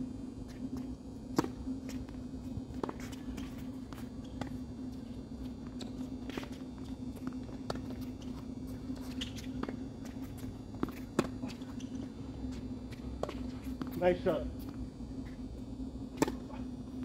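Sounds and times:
low hum: 0:00.0 - 0:17.0
tennis ball bouncing: 0:01.3 - 0:02.1, 0:02.7 - 0:04.6, 0:05.7 - 0:12.1, 0:12.9 - 0:14.0, 0:16.1 - 0:16.6
footsteps and shoe scuffs: 0:02.8 - 0:14.0
racket striking tennis ball: 0:16.2 - 0:16.6.

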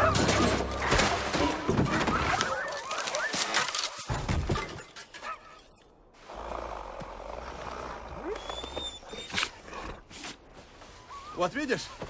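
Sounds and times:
sled dogs yelping and whining: 0:00.0 - 0:05.8, 0:08.2 - 0:12.0
dogs ploughing through deep snow: 0:10.0 - 0:12.0.

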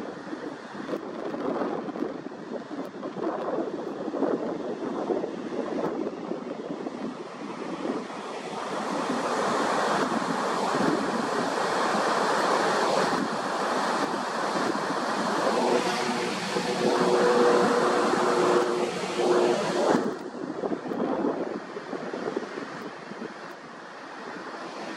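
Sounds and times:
wind buffeting microphone: 0:00.0 - 0:24.9
ocean surf rushing: 0:06.6 - 0:24.9
faint low two-note hum: 0:15.4 - 0:20.2.

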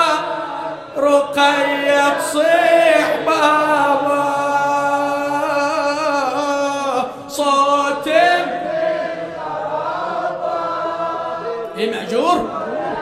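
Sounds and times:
man chanting: 0:00.0 - 0:08.6.

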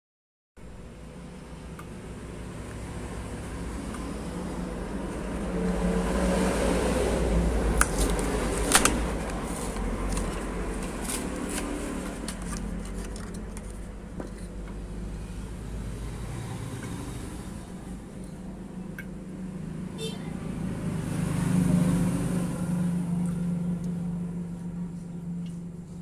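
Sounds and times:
plastic blister crackling: 0:07.7 - 0:13.9
sharp plastic snaps: 0:07.8 - 0:09.4
low background hum: 0:22.6 - 0:26.0.

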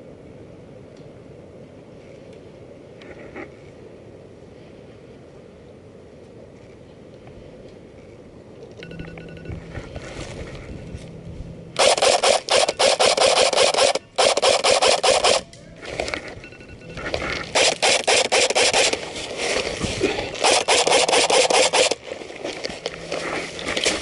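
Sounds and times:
phone alarm tone: 0:08.8 - 0:11.2, 0:16.2 - 0:17.5
clothing rubbing on microphone: 0:18.3 - 0:24.0.

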